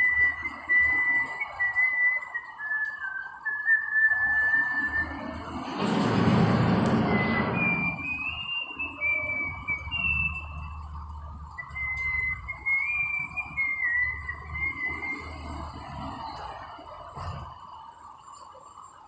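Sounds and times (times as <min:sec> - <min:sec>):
loud rush of noise: 0:03.9 - 0:18.3
machinery humming: 0:04.4 - 0:18.7.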